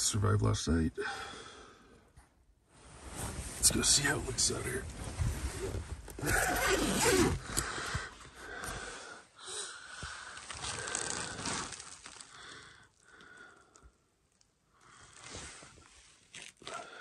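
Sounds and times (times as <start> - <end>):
person breathing: 1.0 - 2.1, 7.4 - 14.0
tent fabric rustling and scraping: 2.7 - 7.6, 10.2 - 12.3, 15.1 - 16.6.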